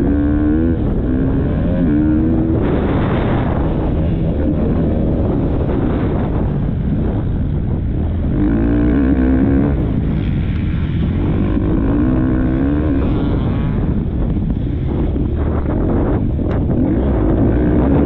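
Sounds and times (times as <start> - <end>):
motocross bike engine revving: 0.0 - 18.0
wind buffeting microphone: 0.0 - 18.0.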